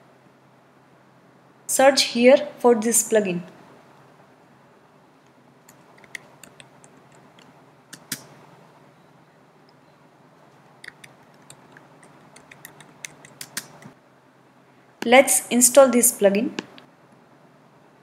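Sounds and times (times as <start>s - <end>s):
faint steady hiss: 0.0s - 18.0s
keyboard keys clicking: 10.8s - 13.9s.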